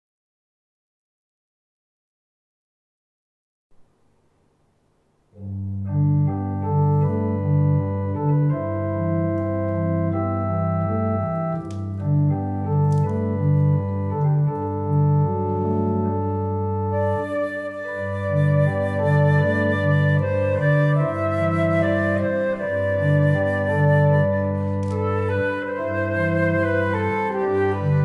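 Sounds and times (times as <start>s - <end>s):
faint hiss: 3.7s - 7.4s, 10.7s - 17.7s
electronic organ chords: 5.3s - 28.0s.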